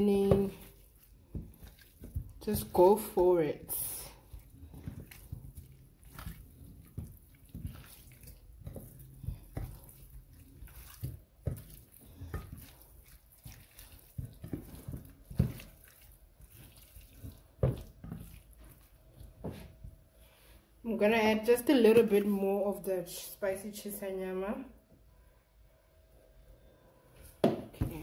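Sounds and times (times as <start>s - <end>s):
hands squishing raw chicken: 0.0s - 20.6s.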